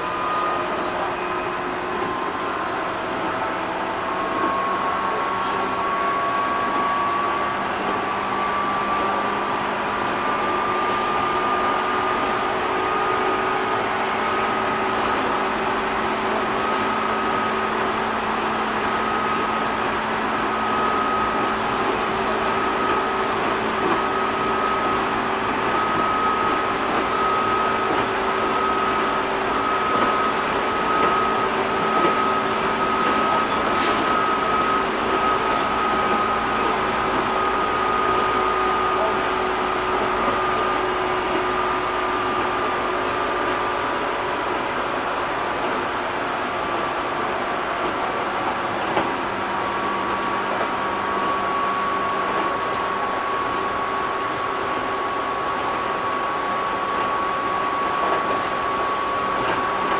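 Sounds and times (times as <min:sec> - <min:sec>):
train motor whine: 0:00.0 - 0:59.9
train running noise: 0:00.0 - 0:59.9.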